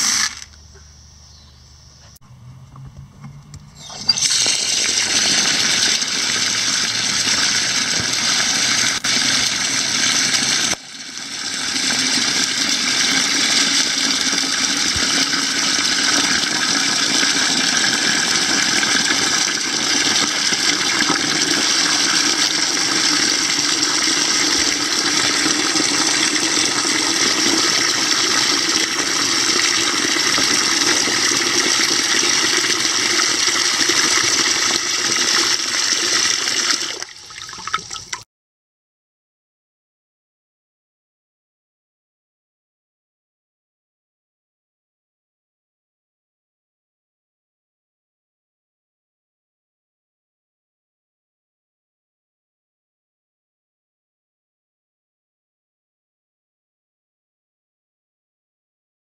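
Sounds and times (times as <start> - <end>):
water pouring into bucket of grain: 0.0 - 0.6, 3.8 - 38.2.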